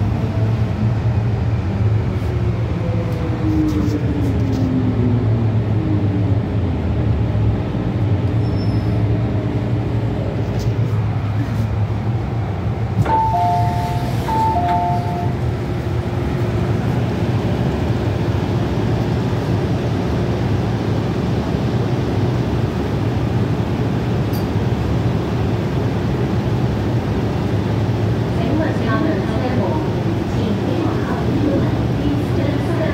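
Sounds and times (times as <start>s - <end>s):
train rumbling in tunnel: 0.0s - 32.9s
two-tone electronic chime: 13.1s - 15.4s.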